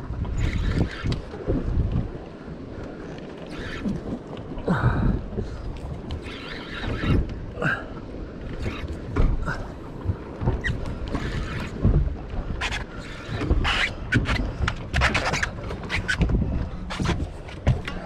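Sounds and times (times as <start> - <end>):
water sloshing around boat: 0.0 - 18.0
wind buffeting microphone: 0.0 - 18.0.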